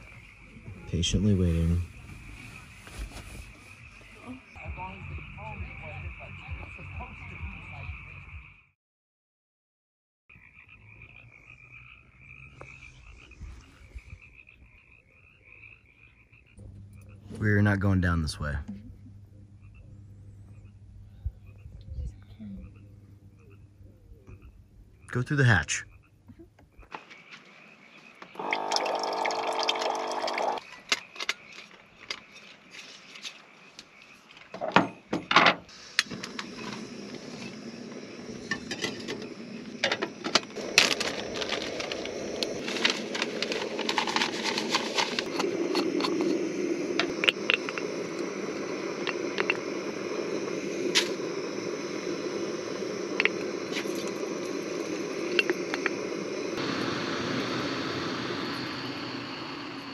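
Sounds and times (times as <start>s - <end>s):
water dispenser pump whining: 28.4s - 30.6s
steady rushing noise: 40.6s - 59.9s.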